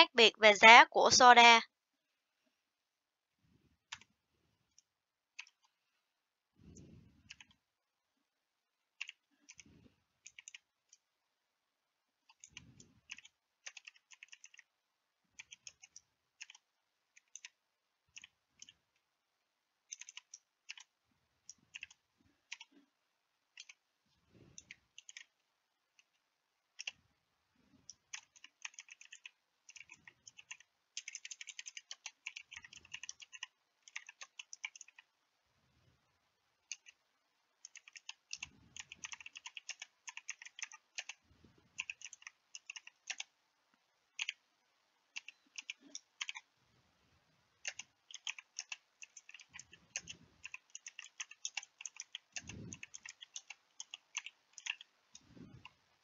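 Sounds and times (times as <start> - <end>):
keyboard typing: 3.8 - 5.8, 6.7 - 7.7, 8.9 - 11.1, 12.2 - 14.7, 15.3 - 19.1, 19.8 - 22.9, 23.5 - 23.9, 24.5 - 27.0, 27.8 - 35.1, 36.6 - 43.4, 44.1 - 44.5, 45.1 - 46.6, 47.6 - 56.0.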